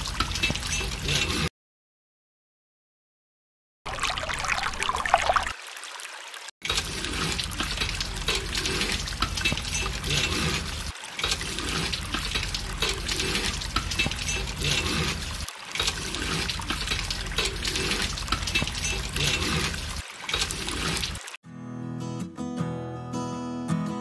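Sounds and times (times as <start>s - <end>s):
water trickling and splashing: 0.0s - 1.5s, 3.9s - 21.4s.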